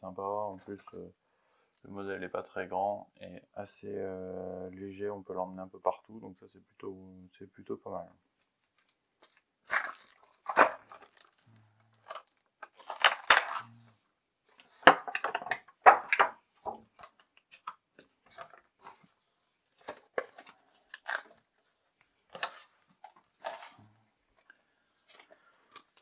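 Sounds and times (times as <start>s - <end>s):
packaging crinkling: 8.8s - 13.8s, 19.7s - 21.6s
hard items clicking and tapping: 14.8s - 19.0s.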